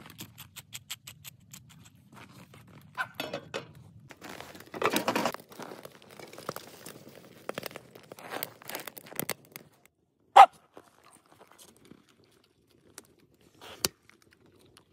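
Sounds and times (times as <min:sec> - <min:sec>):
dog barking: 0:10.4 - 0:10.6.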